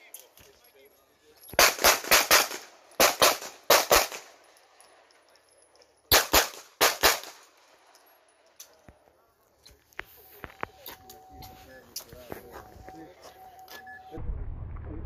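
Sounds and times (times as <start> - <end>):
pistol shots: 1.6 - 4.4, 6.1 - 7.5.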